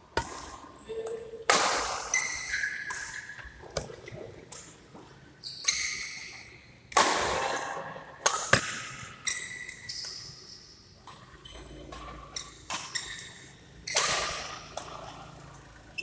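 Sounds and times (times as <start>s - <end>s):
racket hitting shuttlecock: 0.1s - 4.6s, 5.7s - 10.2s, 12.4s - 15.2s
shoes squeaking on court: 2.0s - 6.7s, 8.5s - 15.4s.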